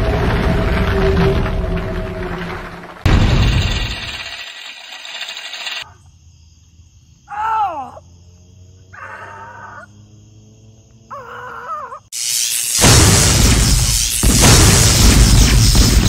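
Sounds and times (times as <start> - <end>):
loud crash-like burst: 0.0 - 4.5, 12.2 - 16.0.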